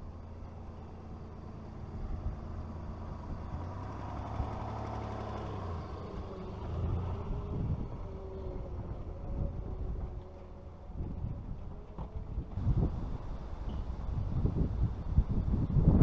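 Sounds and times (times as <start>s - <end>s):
tyres rolling on dirt: 0.0s - 15.6s
vehicle engine at low revs: 0.0s - 16.0s.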